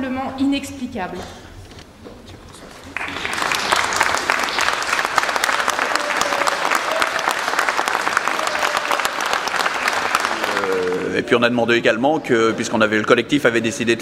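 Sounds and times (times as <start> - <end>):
crowd clapping: 2.8 - 11.4.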